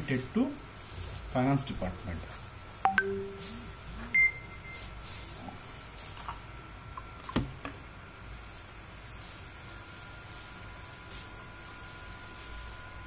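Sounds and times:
high electronic beep: 2.9 - 3.5.

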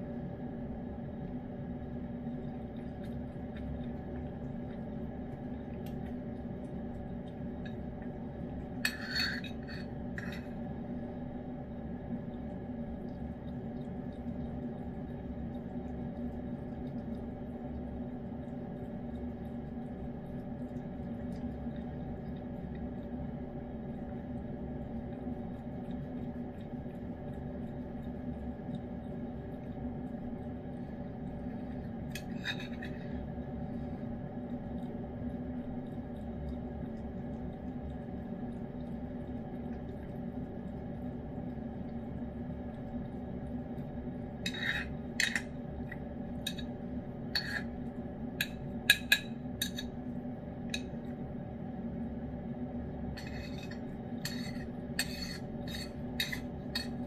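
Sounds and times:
steady low hum: 0.0 - 57.0
spoon clinking against ceramic dish: 8.8 - 10.4.

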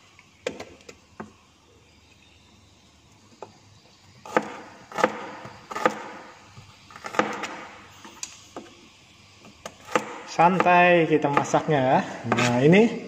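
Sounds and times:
cleaver striking cutting board: 4.3 - 6.2, 7.0 - 7.7, 9.6 - 11.7, 12.3 - 12.6.

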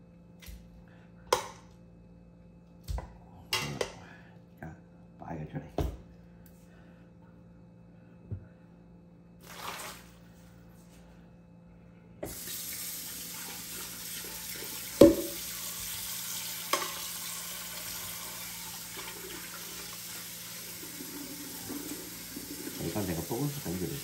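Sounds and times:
tap water running into sink: 9.4 - 10.1, 12.2 - 24.0.

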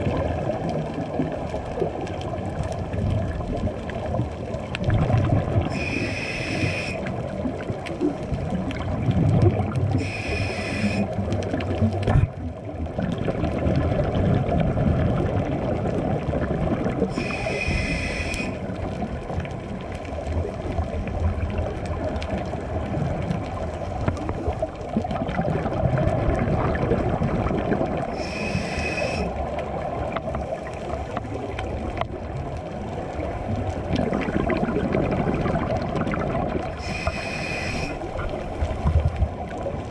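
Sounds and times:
exhaled bubbles rumbling: 0.0 - 39.9
muffled underwater rumble: 0.0 - 39.9
scuba regulator inhale hiss: 5.7 - 7.1, 10.0 - 11.2, 17.1 - 18.6, 28.1 - 29.4, 36.8 - 38.2.

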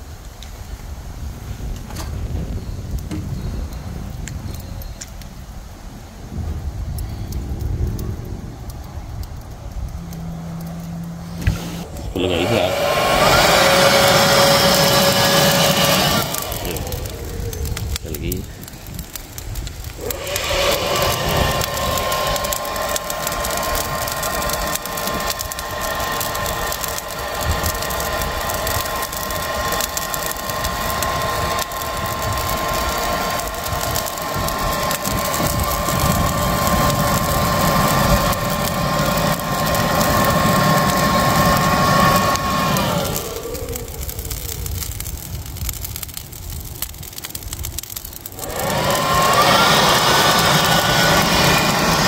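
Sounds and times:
rush of air: 5.4 - 52.0
electric blower motor whining: 9.6 - 52.0.

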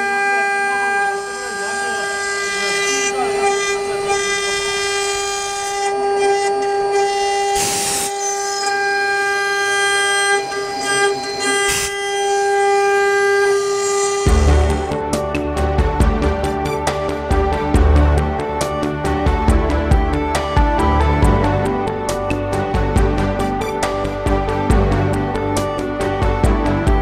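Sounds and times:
router spindle whine cutting wood: 0.0 - 17.2.

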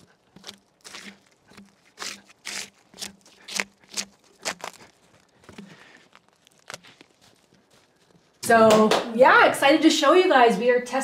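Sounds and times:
drawknife stripping bark: 0.0 - 8.4.

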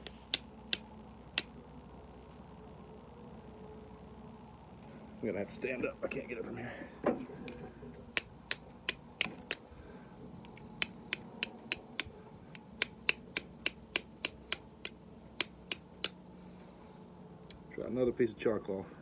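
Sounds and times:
flint and steel strikes: 8.1 - 9.7, 10.4 - 16.2.

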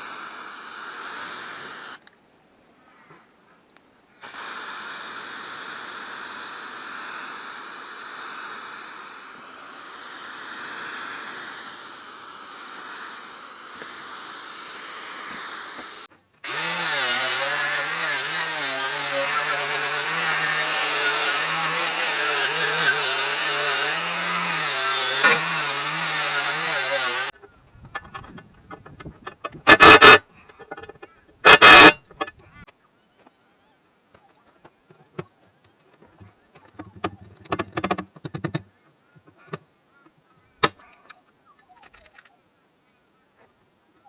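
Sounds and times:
angle grinder whining: 0.0 - 2.0, 4.2 - 28.2, 29.2 - 32.3
spray paint hissing: 0.0 - 2.0, 4.2 - 27.4, 29.6 - 30.2, 31.4 - 32.0
wire brush scrubbing metal: 4.2 - 27.4, 29.2 - 32.3.

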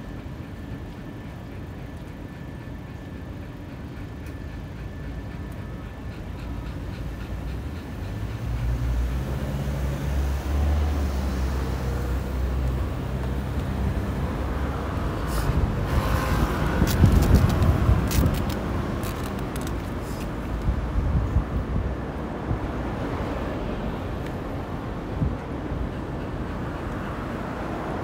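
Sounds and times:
passing traffic road noise: 0.0 - 28.0
sharp clicks: 16.8 - 20.3.

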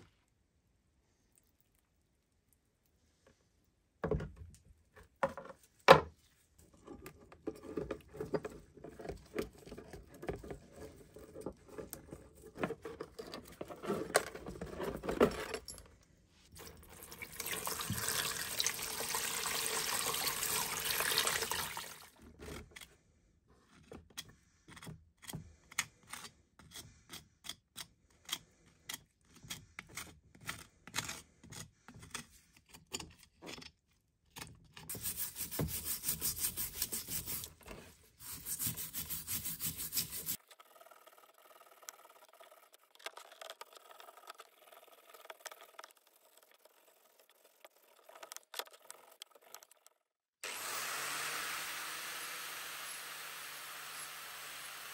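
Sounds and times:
water pouring into tub: 16.6 - 22.1.

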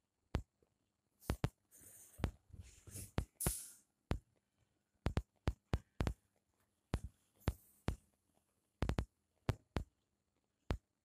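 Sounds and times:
sharp taps and thumps: 5.0 - 6.2, 6.9 - 8.0, 8.8 - 9.9.

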